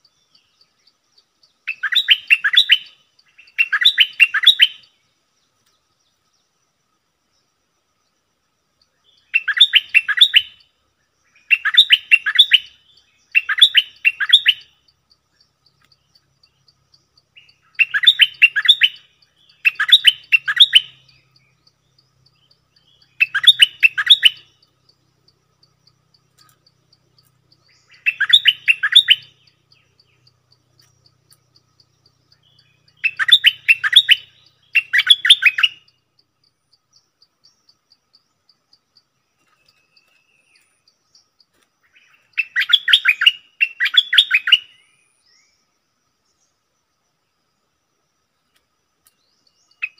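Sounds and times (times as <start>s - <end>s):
faint fast insect ticking: 0.0s - 49.9s
bulbul singing chattering notes: 11.4s - 44.7s.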